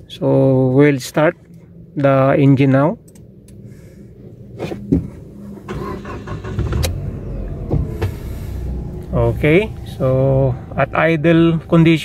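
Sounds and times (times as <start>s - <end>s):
car engine starting and idling: 3.0s - 12.0s.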